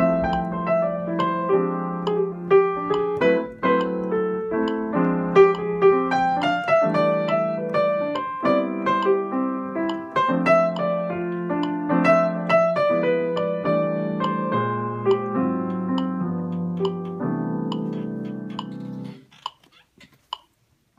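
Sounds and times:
jazz piano improvisation: 0.0s - 20.0s
faint clicks: 15.1s - 20.6s.

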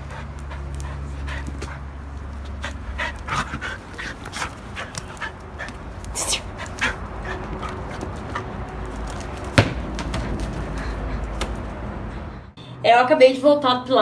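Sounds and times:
dog breathing: 0.0s - 8.6s
dog scuffling: 0.1s - 10.9s.

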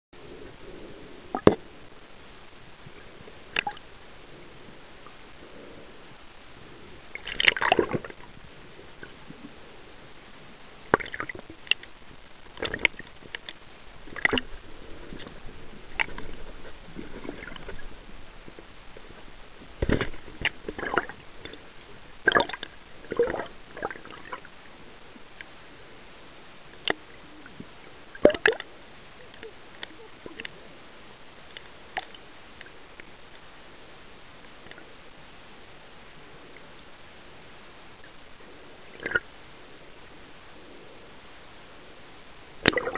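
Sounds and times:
water sloshing and bubbling: 0.2s - 33.5s, 37.9s - 39.4s, 42.5s - 42.9s
steady hiss: 0.2s - 42.9s
sharp splashes and clicks: 3.5s - 3.8s, 7.2s - 8.2s, 10.9s - 14.6s, 22.2s - 24.4s, 28.2s - 28.7s, 42.6s - 42.9s.

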